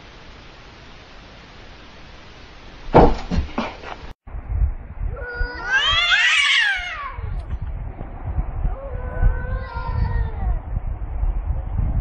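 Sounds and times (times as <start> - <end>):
kitten thumping against mirror: 2.9 - 3.5
cat yowling: 5.2 - 7.4, 8.7 - 10.6.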